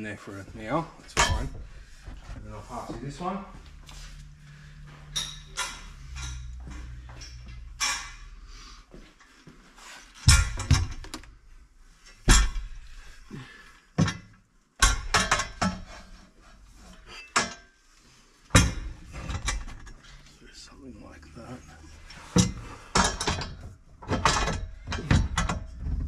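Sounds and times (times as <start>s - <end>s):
steel tubes knocking and clanking: 0.6s - 2.4s, 5.1s - 8.5s, 10.2s - 11.4s, 12.0s - 13.2s, 14.0s - 17.8s, 18.4s - 20.4s, 21.9s - 26.0s.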